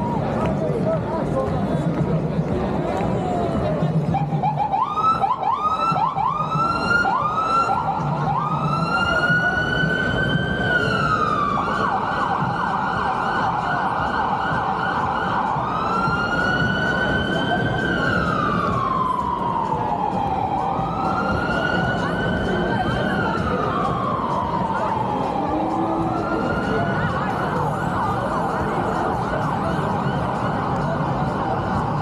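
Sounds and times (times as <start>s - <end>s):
street noise: 0.0s - 32.0s.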